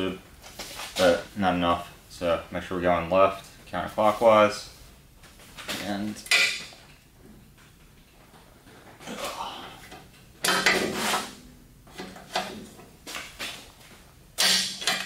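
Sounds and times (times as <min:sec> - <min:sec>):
breaker bar metallic clanks: 0:14.4 - 0:15.0.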